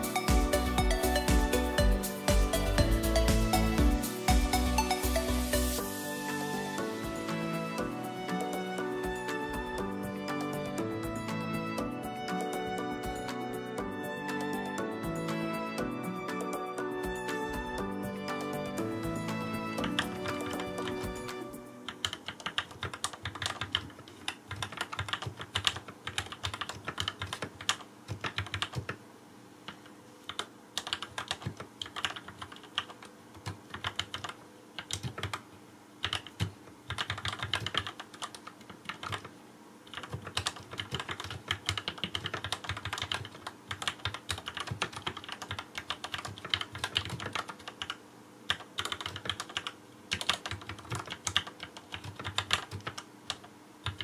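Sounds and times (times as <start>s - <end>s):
fast keyboard typing: 19.8s - 29.0s, 29.7s - 35.4s, 36.0s - 39.3s, 39.9s - 54.0s.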